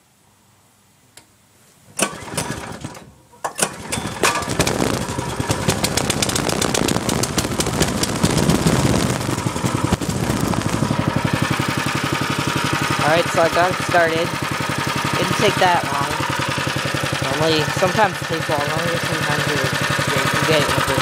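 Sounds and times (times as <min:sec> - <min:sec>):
engine pull-started and running: 0:02.0 - 0:21.0.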